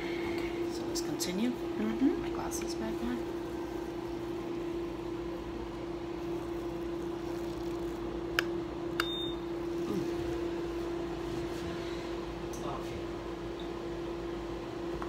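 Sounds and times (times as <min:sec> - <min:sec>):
laser machine humming: 0:00.0 - 0:11.2.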